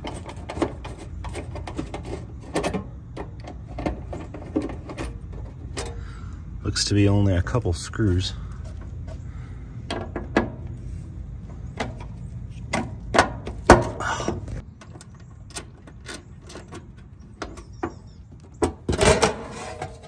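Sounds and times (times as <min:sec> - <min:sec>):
metal panel rattling: 0:00.0 - 0:06.1, 0:09.8 - 0:10.8, 0:11.4 - 0:20.0.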